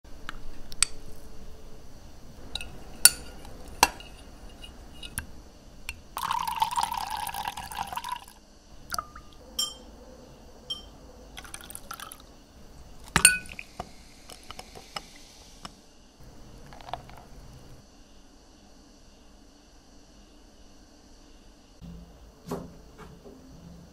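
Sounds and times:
spoon stirring with light taps: 2.4s - 5.3s, 8.9s - 9.9s, 10.7s - 12.2s, 13.0s - 15.2s, 16.3s - 17.8s
spoon clinking against glass: 2.6s - 5.2s, 8.9s - 9.9s, 10.7s - 12.2s, 13.1s - 13.7s
liquid pouring into glass: 6.2s - 9.8s, 11.4s - 12.3s, 13.0s - 13.7s, 16.6s - 17.6s
soft hiss: 11.9s - 21.6s.

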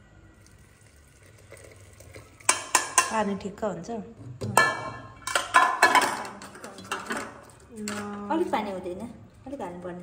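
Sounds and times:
metal spoon stirring in a pot: 1.3s - 3.4s
metal clinking against a pot: 2.1s - 3.4s, 4.4s - 8.2s.

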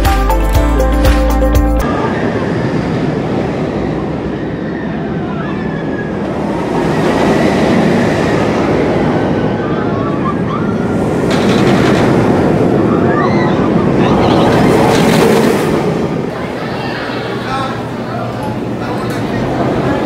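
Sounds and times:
roller coaster rumbling on track: 1.8s - 20.0s.

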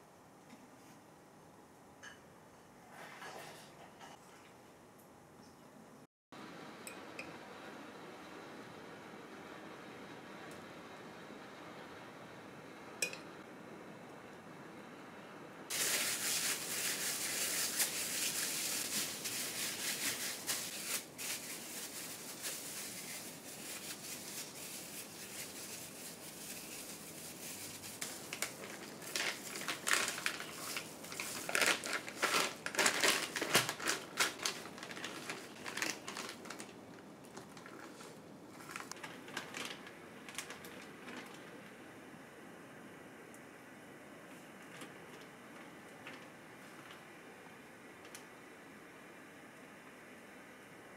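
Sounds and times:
plastic bag crinkling: 15.7s - 41.6s.

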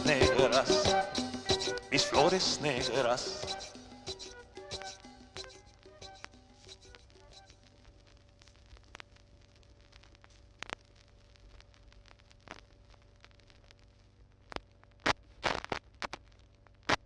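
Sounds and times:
stylus pop in run-out groove: 0.0s - 7.6s
vinyl surface hiss and hum: 0.0s - 17.0s
vinyl clicks and crackles: 4.8s - 17.0s.

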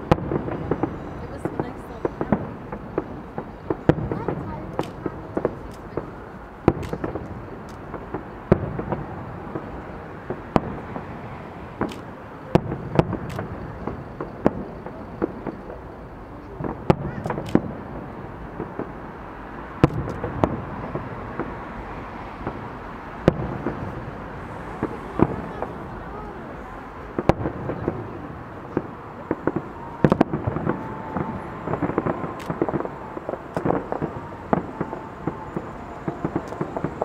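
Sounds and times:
fireworks shells bursting: 22.4s - 37.0s.

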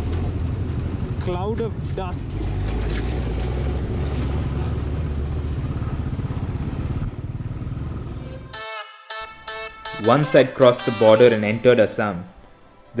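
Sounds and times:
motorcycle engine running: 3.6s - 8.2s
music: 8.2s - 13.0s.

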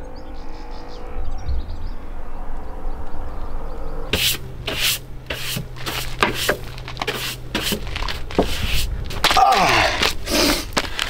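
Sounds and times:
towel rubbing against skin: 4.1s - 9.0s.

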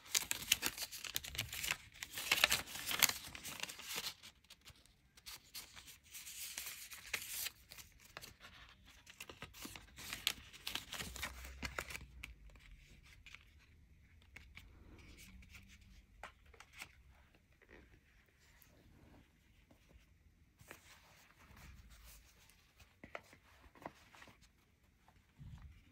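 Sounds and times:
paper packaging rustling: 0.0s - 13.6s.

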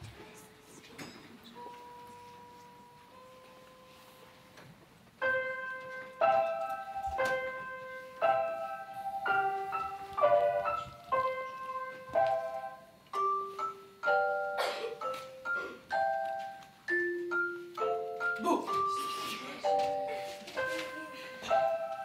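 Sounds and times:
bell-like keyboard tune: 5.2s - 22.0s.

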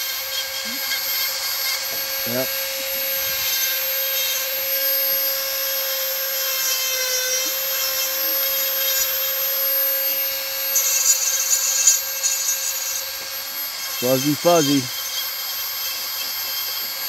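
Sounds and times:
rotary tool whining: 0.0s - 17.0s
burr cutting into wood: 10.6s - 17.0s.

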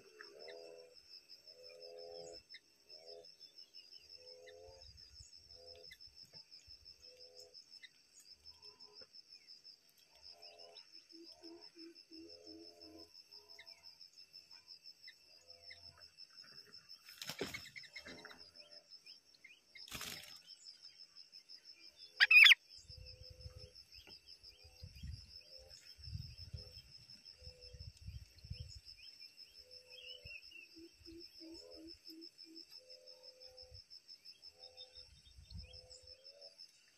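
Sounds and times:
high-pitched insect trilling: 22.0s - 33.8s
short loud bird call: 22.2s - 22.6s.

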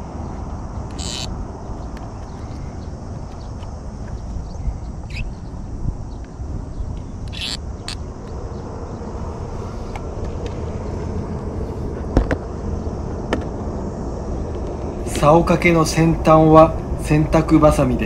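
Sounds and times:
wind on microphone: 0.0s - 18.0s.

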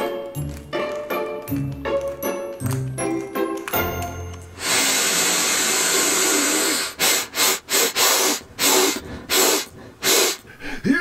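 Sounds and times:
person sniffing through nose: 4.6s - 10.8s.

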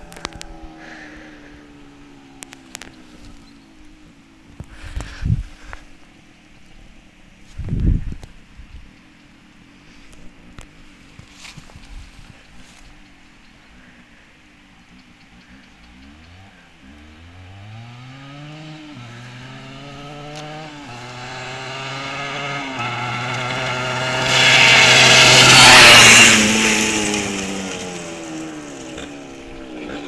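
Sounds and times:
motorcycle engine accelerating: 15.8s - 30.0s.

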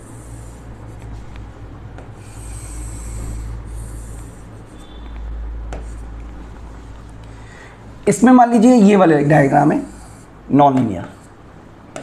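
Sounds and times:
chalk scraping on chalkboard: 0.0s - 7.0s, 11.0s - 11.4s
steady low hum: 0.0s - 12.0s.

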